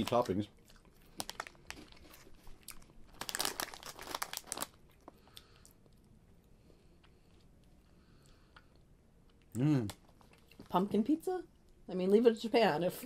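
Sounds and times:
plastic snack bag crinkling: 0.0s - 5.7s.

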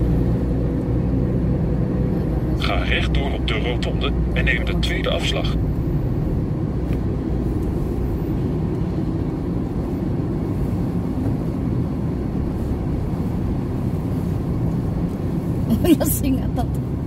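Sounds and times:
car road and engine noise: 0.0s - 17.0s.

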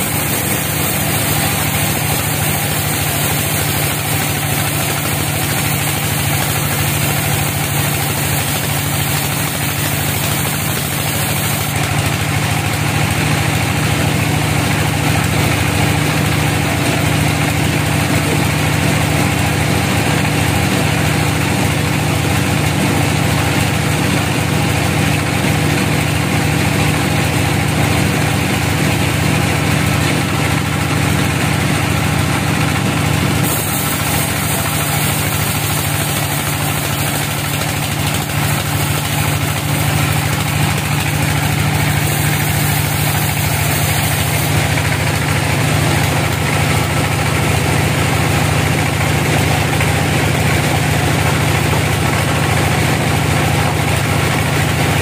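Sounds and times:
blade hissing through log: 0.0s - 12.0s, 33.4s - 45.2s
band sawmill drone: 0.0s - 55.0s.

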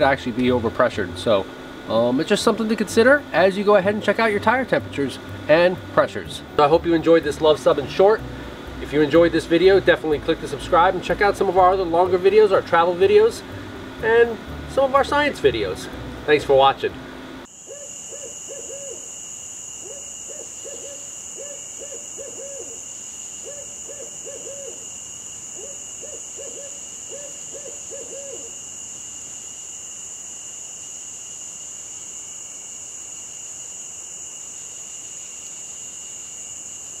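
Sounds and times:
high-pitched drone: 0.0s - 19.1s
owl hooting: 17.5s - 19.2s, 19.8s - 28.6s.

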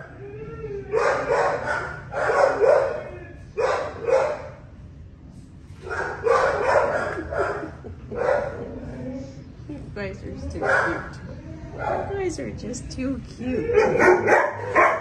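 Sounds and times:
dog barking with echo: 1.0s - 3.0s, 5.9s - 8.6s, 13.8s - 15.0s.

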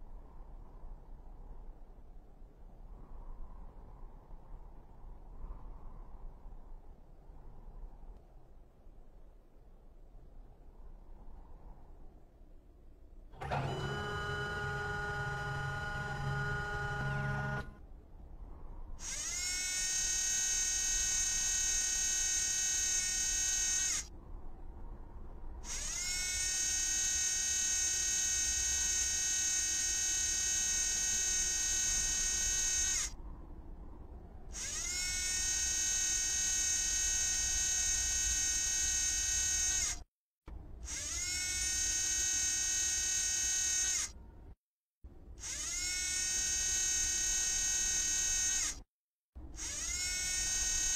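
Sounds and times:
high electric motor whine: 13.4s - 17.8s, 19.0s - 24.1s, 25.6s - 33.1s, 34.5s - 40.0s, 40.9s - 44.1s, 45.4s - 48.8s, 49.6s - 50.9s.

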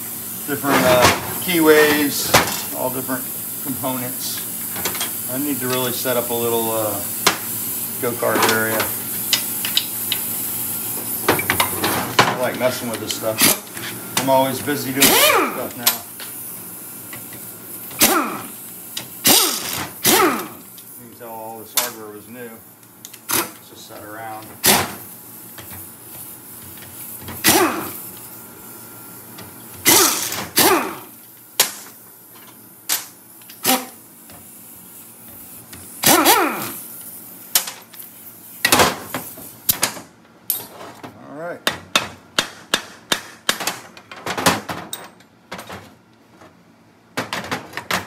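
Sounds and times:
air impact wrench bursts: 0.0s - 22.0s, 24.2s - 28.8s, 29.8s - 39.8s.

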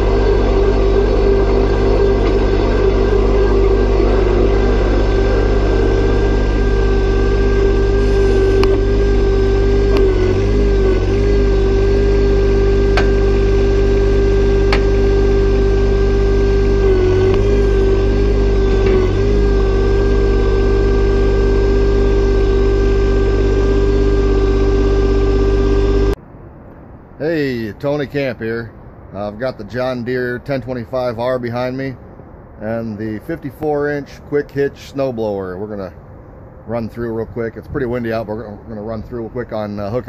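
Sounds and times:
tractor diesel engine running: 0.0s - 26.2s
steady whine: 0.0s - 40.0s.

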